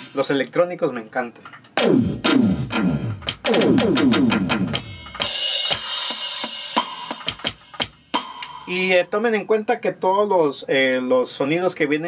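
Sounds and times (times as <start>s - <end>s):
electronic drum hits: 1.8s - 8.7s.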